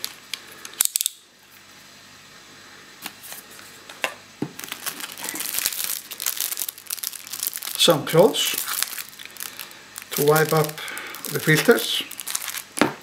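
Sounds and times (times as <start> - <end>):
foil bag crinkling: 4.5 - 13.0.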